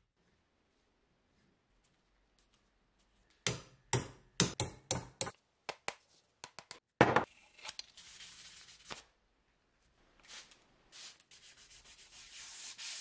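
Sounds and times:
hand sanding with sandpaper: 0:11.3 - 0:13.0.

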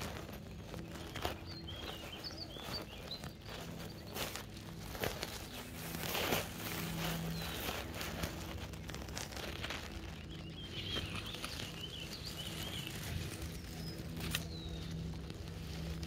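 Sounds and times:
grass stems rustling: 0:00.0 - 0:16.0
songbird warbling: 0:00.2 - 0:04.4.

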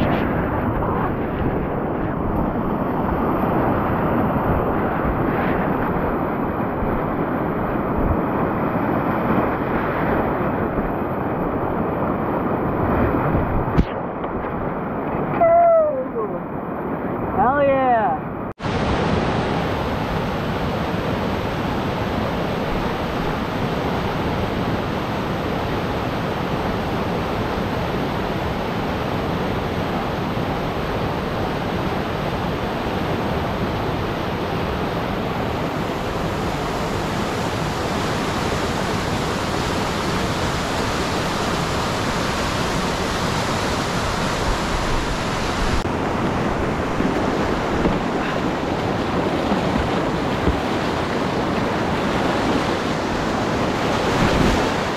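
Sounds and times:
whitewater rapids rushing: 0:18.6 - 0:54.9.

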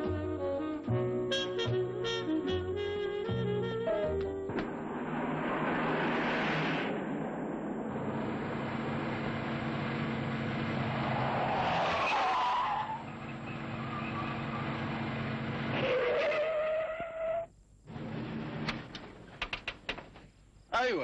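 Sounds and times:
car engine running: 0:04.8 - 0:11.6, 0:13.0 - 0:15.8
tyre squeals: 0:15.7 - 0:17.5.

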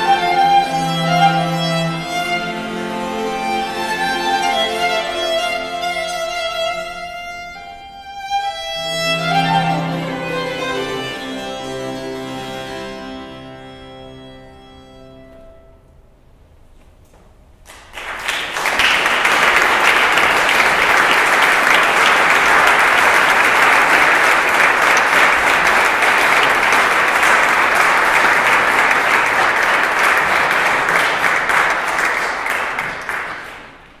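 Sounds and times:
audience applauding: 0:17.7 - 0:34.0.

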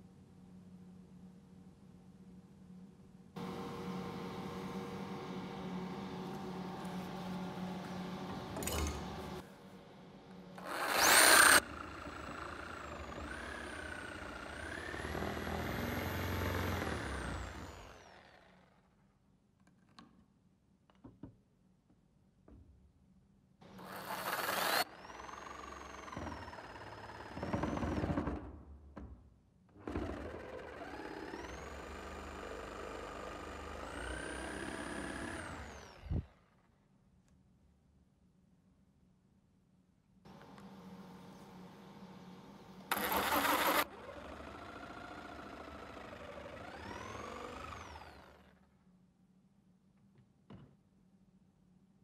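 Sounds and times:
band saw cutting wood: 0:10.6 - 0:18.1, 0:23.8 - 0:24.9, 0:42.9 - 0:48.3.

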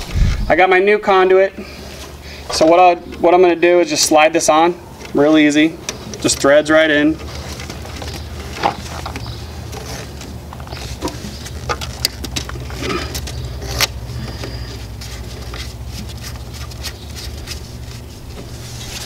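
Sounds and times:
steady low hum: 0:00.0 - 0:19.0
conduit clicking and scraping: 0:07.2 - 0:19.0.

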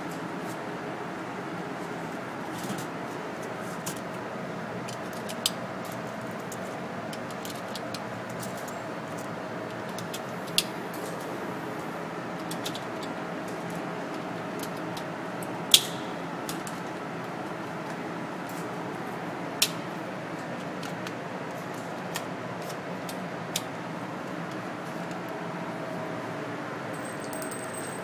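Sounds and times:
ventilation hum: 0:00.0 - 0:28.0.

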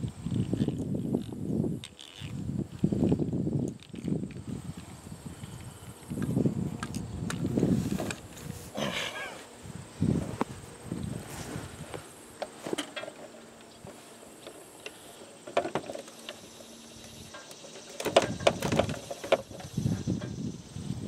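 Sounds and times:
clicks and knocks of leather belt: 0:00.0 - 0:04.9.

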